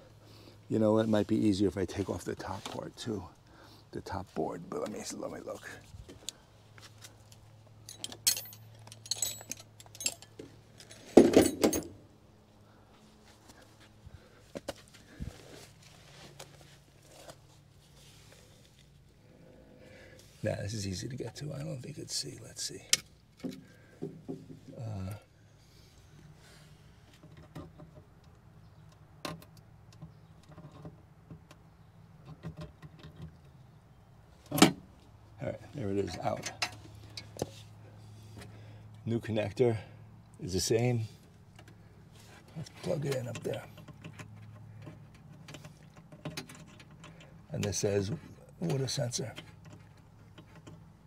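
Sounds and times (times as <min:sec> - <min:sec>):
wiring clicks and rustles: 0:04.6 - 0:12.0, 0:41.3 - 0:51.0
light metallic clinks and jingles: 0:07.2 - 0:12.0.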